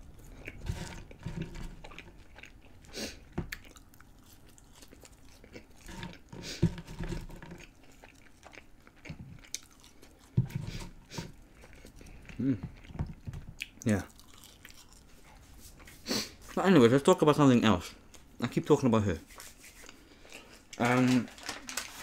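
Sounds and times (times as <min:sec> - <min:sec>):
person chewing crunchy food: 0:00.0 - 0:16.6.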